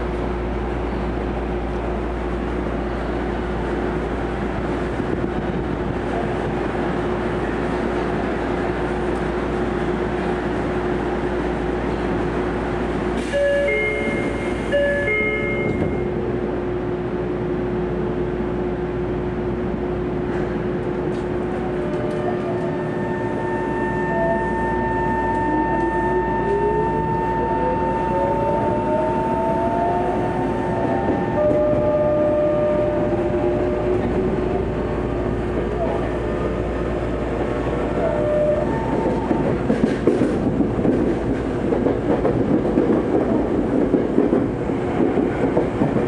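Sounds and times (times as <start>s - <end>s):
train pulling away: 6.8s - 16.4s, 20.2s - 46.0s.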